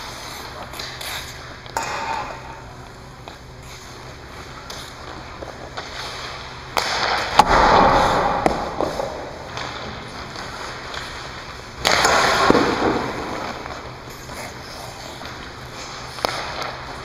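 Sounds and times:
skates scraping on ice: 0:03.6 - 0:07.4, 0:08.0 - 0:17.0.

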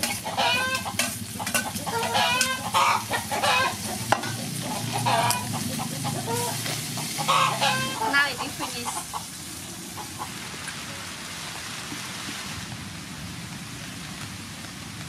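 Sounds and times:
metal spatula scraping a pan: 0:00.0 - 0:08.7
chickens clucking: 0:00.0 - 0:10.8
food sizzling in a wok: 0:00.0 - 0:15.0.

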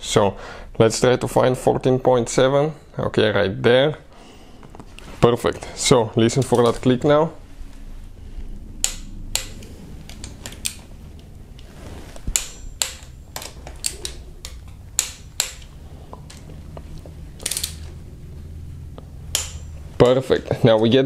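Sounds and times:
torque wrench clicking: 0:12.3 - 0:16.4, 0:17.4 - 0:17.9, 0:19.3 - 0:19.8.

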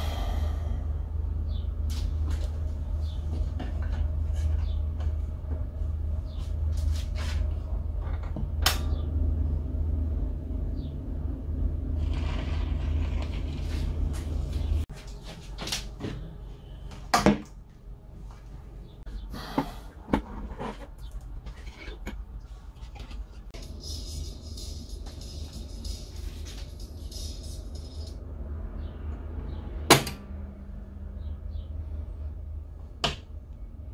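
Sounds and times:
radio low hum and rumble: 0:00.0 - 0:14.8.

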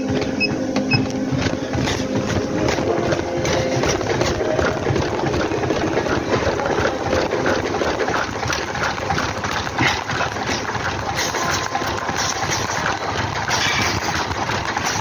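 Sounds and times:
running footfalls on treadmill: 0:00.0 - 0:15.0
treadmill motor hum: 0:00.0 - 0:15.0.

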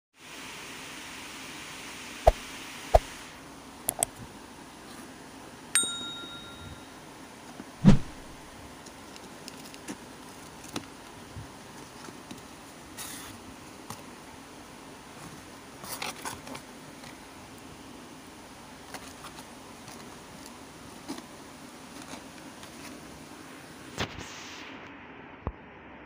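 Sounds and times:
steady hiss: 0:00.2 - 0:07.0
bell-like ding: 0:05.8 - 0:07.0
loud dull thump: 0:07.8 - 0:08.4
rustling of cardboard and paper: 0:08.8 - 0:14.1, 0:15.1 - 0:17.3, 0:18.8 - 0:23.3.

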